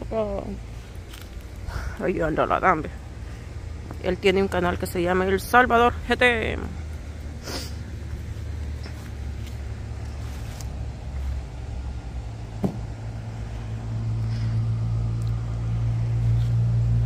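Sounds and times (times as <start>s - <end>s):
vehicle engine rumble: 0.0s - 17.0s
short knock: 12.6s - 12.9s.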